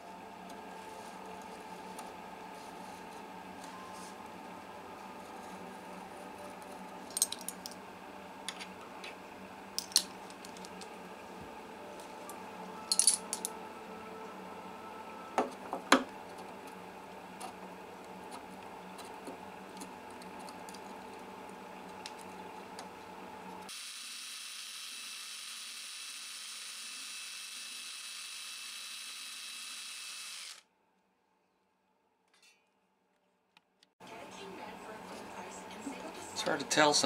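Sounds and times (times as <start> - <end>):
small drill boring into wood: 23.7 - 30.7.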